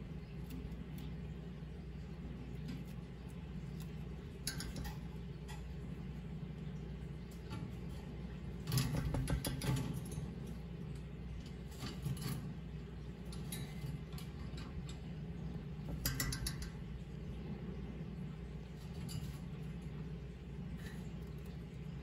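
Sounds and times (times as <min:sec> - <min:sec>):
bird tapping on perch: 0:15.9 - 0:16.8.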